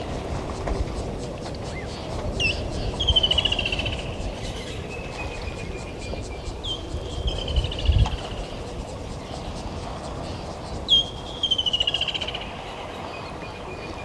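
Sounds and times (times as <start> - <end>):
steady low rumble: 0.0 - 13.4
bird calling: 0.5 - 14.0.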